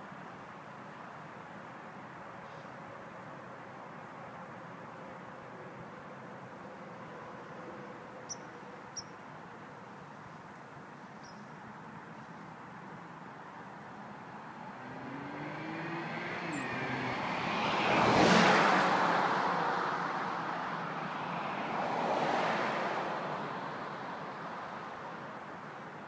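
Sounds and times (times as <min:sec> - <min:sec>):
second car passing quietly: 0:14.6 - 0:24.9
car engine driving past: 0:14.8 - 0:23.2.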